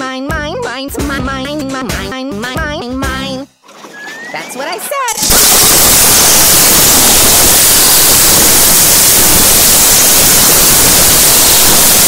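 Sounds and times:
loud white noise static: 5.2 - 12.0.

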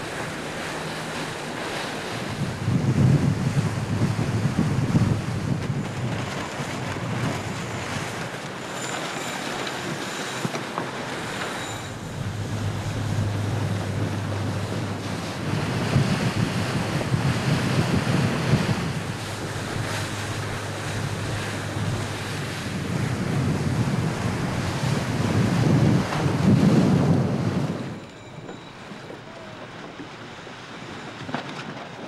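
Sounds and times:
water rushing past a boat: 0.0 - 32.0
wind buffeting microphone: 0.0 - 32.0
low hum: 11.0 - 25.4.

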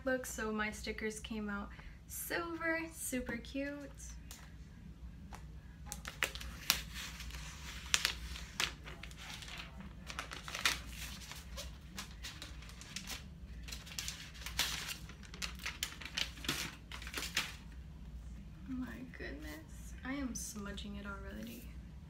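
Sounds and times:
plastic wrap crinkling: 5.9 - 17.7.

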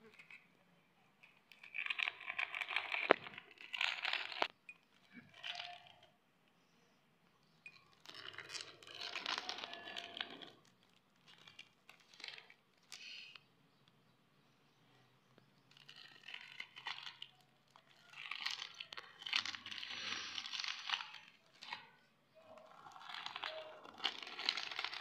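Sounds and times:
plastic wrappers crinkling: 1.5 - 6.1, 7.8 - 13.4, 15.7 - 25.0.

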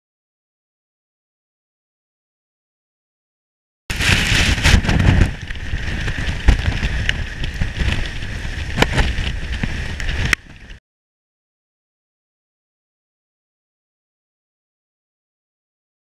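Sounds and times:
wind buffeting microphone: 3.9 - 10.8.

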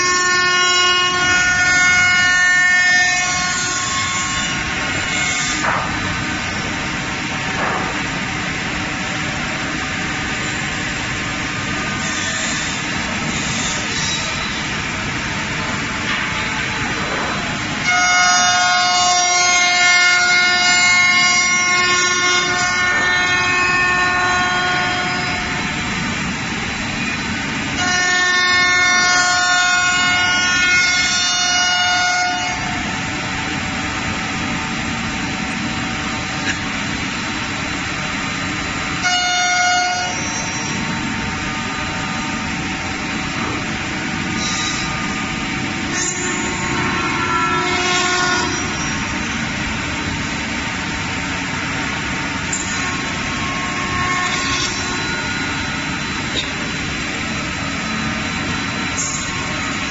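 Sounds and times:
router spindle whining cutting wood: 52.7 - 59.9.

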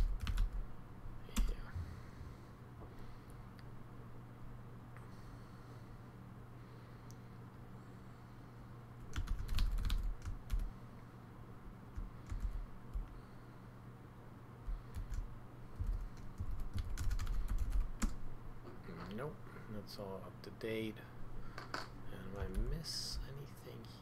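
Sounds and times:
computer keyboard typing: 0.0 - 0.6, 9.1 - 10.7, 12.0 - 13.2, 14.7 - 18.2, 22.4 - 22.7.

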